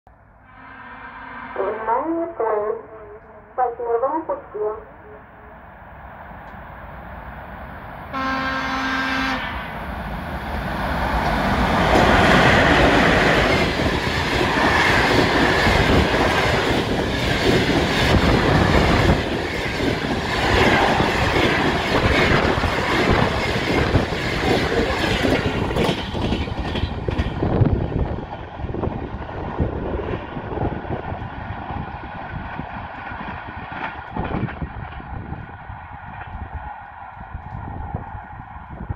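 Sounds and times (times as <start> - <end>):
locomotive horn blast: 0.4 - 4.0, 8.1 - 9.7
train rushing past: 4.8 - 38.9
train wheels clickety-clack: 11.1 - 29.0, 31.0 - 35.5.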